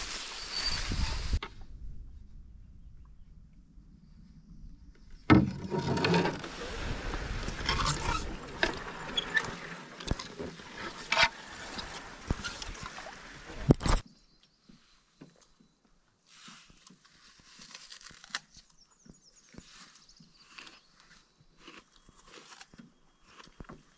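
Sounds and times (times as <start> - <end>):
grass scraping along canoe hull: 5.3 - 14.0, 16.3 - 18.5.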